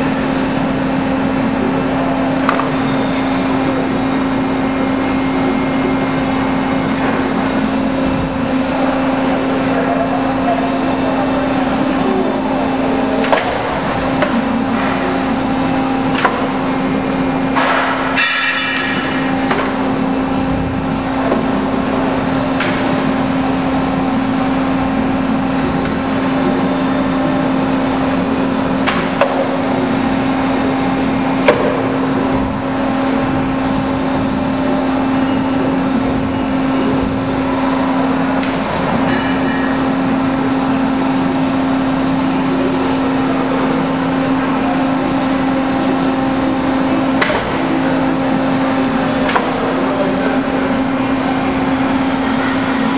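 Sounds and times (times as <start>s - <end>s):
hydraulic power unit humming: 0.0s - 52.9s
machine clanks: 17.2s - 19.8s.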